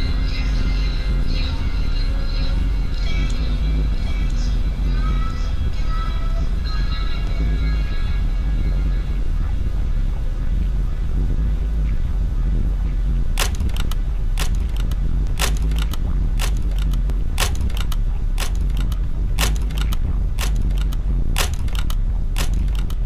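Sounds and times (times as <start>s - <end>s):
steady low hum: 0.0s - 23.0s
lamp switch clicks: 13.4s - 23.0s.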